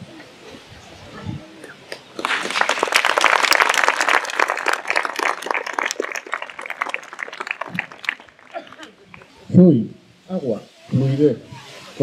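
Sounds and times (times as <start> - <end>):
audience applauding: 2.2 - 9.3.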